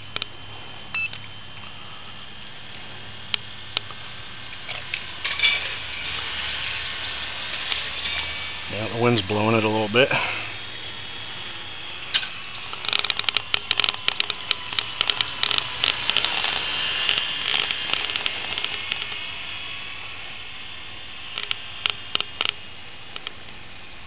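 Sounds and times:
rc helicopter whine: 0.0 - 24.0
crackling clicks on microphone: 12.1 - 19.3, 21.3 - 23.6.

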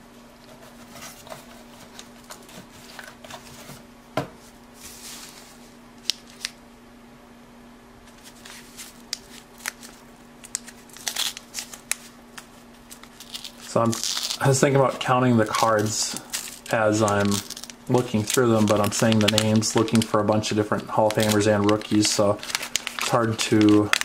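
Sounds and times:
low steady hum: 0.0 - 24.0
cards rustling and tapping: 8.1 - 24.0
wax wrapper crinkling: 8.1 - 24.0.

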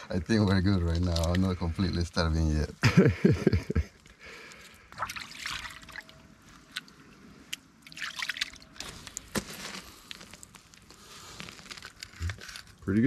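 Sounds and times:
water splashing and trickling: 4.5 - 12.2.

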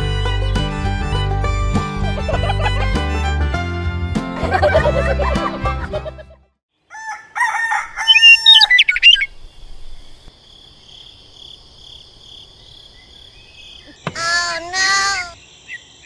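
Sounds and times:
loud pitched calls: 7.8 - 9.4
bird chirps and calls: 8.0 - 10.1, 13.0 - 16.0
insect trill: 8.0 - 14.1.

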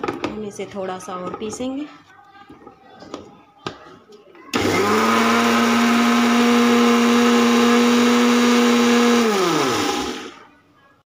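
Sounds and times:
mixer grinder running: 4.5 - 10.4
mixer grinder spinning down: 4.5 - 10.4.

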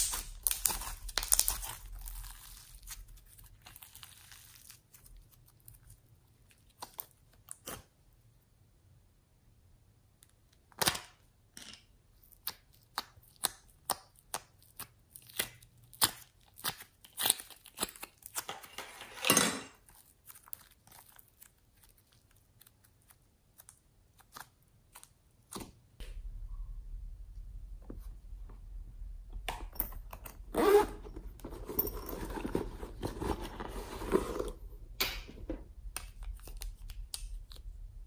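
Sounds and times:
slime tearing: 0.0 - 7.9.

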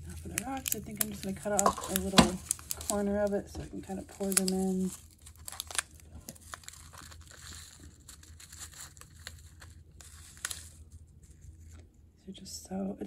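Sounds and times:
plastic pouch crinkling: 0.0 - 11.8
tiny pebbles clicking into a pot: 0.2 - 3.0.

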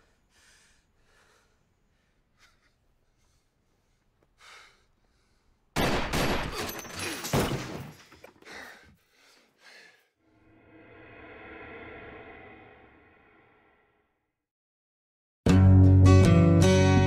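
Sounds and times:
loud gunshot: 5.8 - 6.6
rapid gunshots: 5.8 - 6.6.

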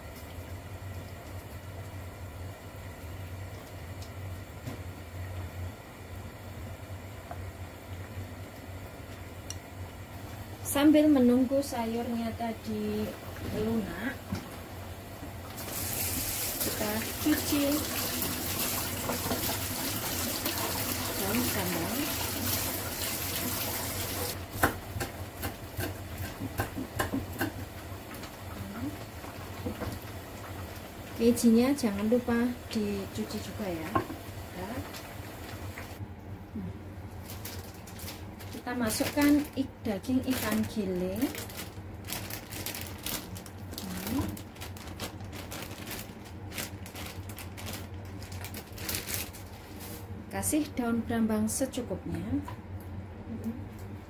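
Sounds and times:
tap water running in sink: 15.3 - 24.4
plastic bag crinkling: 37.2 - 49.9.

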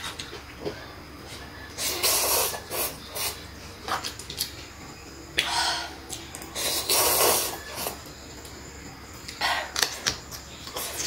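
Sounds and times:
noodles being slurped: 6.5 - 8.0.

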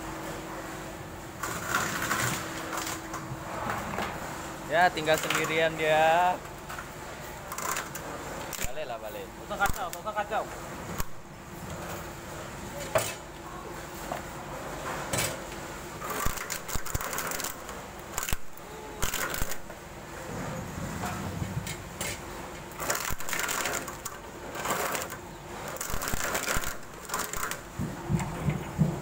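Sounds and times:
coconut shells grinding and crunching: 8.5 - 10.1, 16.0 - 19.7, 22.8 - 27.7.

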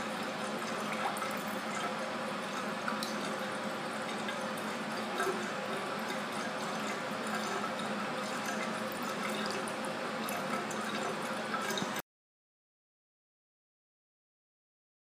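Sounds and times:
faint drips and ticks: 0.0 - 12.0.

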